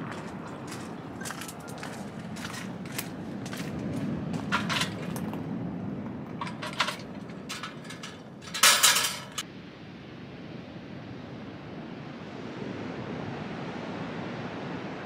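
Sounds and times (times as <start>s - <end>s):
footsteps on gravel: 0.0s - 5.4s, 6.3s - 9.4s
wind and surf rumble: 0.0s - 15.0s
metal heater clinking: 0.1s - 5.4s, 6.1s - 9.4s.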